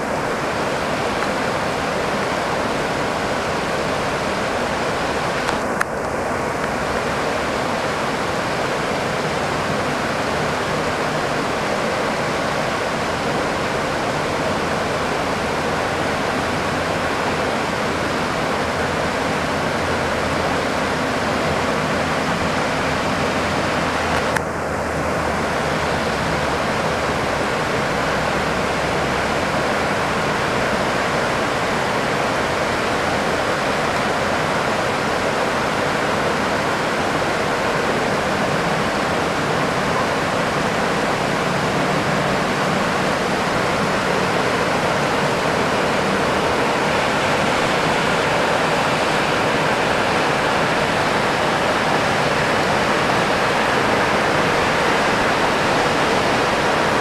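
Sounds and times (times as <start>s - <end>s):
heavy rain: 0.0s - 57.0s.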